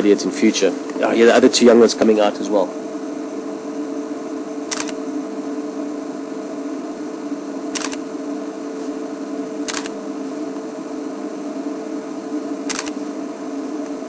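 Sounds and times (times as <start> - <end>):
steady low hum: 0.0 - 14.0
camera shutter clicks: 4.7 - 5.0, 7.7 - 8.1, 9.6 - 10.0, 12.7 - 13.0.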